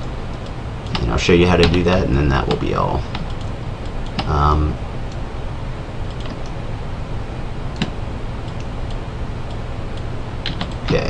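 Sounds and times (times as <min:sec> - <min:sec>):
steady low hum: 0:00.0 - 0:11.0
computer mouse clicks: 0:03.1 - 0:04.3, 0:06.1 - 0:06.6, 0:07.7 - 0:11.0.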